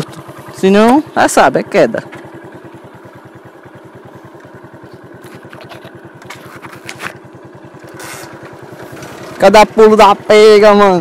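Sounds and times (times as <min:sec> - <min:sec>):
small engine idling: 0:00.0 - 0:11.0.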